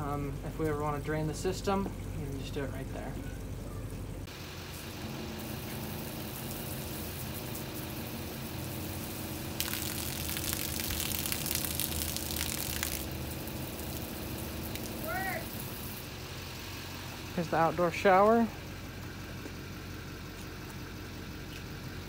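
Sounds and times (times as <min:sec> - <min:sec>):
water spraying from a hose: 0:04.3 - 0:19.0.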